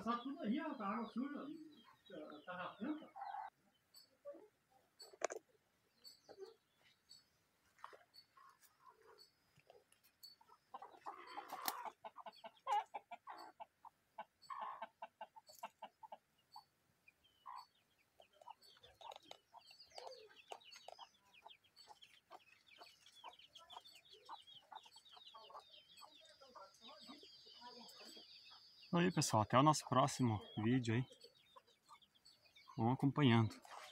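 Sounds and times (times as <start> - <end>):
chickens clucking: 0.0 - 33.9.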